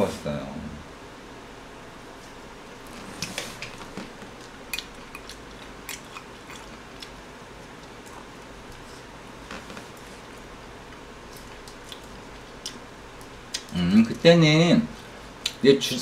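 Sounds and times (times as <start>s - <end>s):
quiet chewing: 2.2s - 13.8s.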